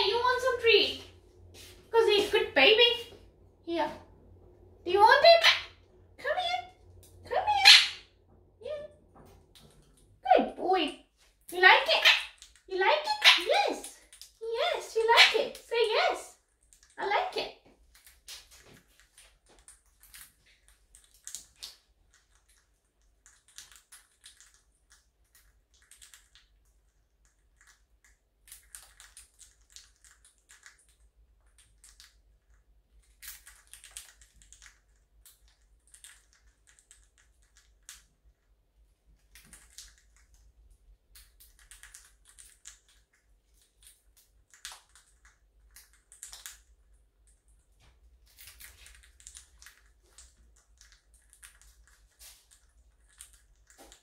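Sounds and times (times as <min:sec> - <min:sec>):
parrots crunching corn flakes: 0:11.2 - 0:54.0.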